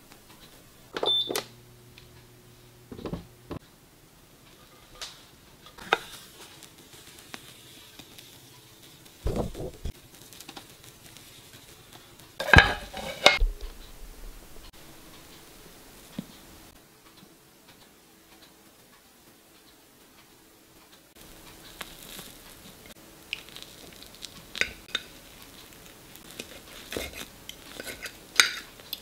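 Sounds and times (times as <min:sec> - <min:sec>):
spatula scraping frying pan: 0:05.7 - 0:13.4, 0:24.2 - 0:29.0.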